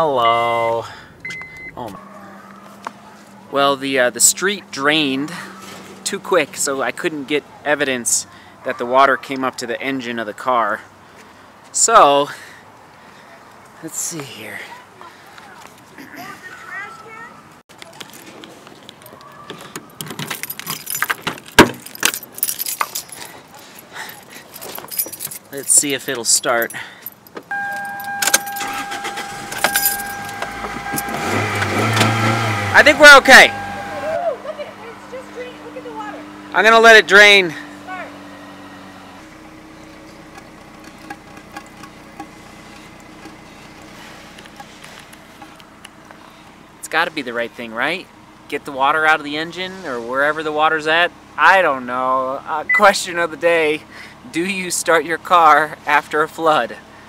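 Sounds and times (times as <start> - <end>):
car keys jingling: 1.2 - 2.0, 19.0 - 34.1, 40.2 - 45.9
car door clunk: 19.7 - 22.2, 27.3 - 32.4
car engine idling: 26.5 - 46.8.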